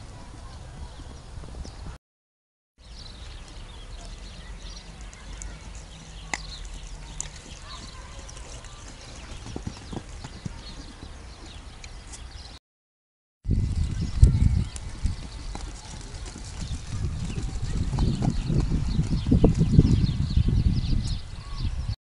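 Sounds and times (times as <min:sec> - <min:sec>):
horse hoofbeats on sand: 0:06.2 - 0:11.7, 0:13.6 - 0:20.0.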